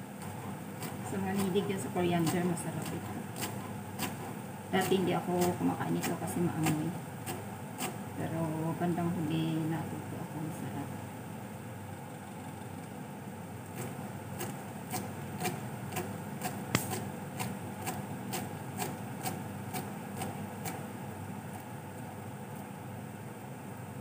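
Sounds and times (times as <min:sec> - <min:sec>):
knife chopping on cutting board: 0:13.8 - 0:20.8.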